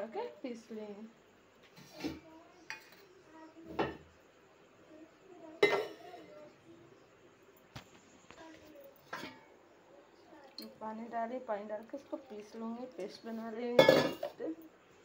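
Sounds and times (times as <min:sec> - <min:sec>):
steel bowls and utensils clinking: 0:01.8 - 0:03.1, 0:05.6 - 0:06.1, 0:09.0 - 0:09.5, 0:13.8 - 0:14.4.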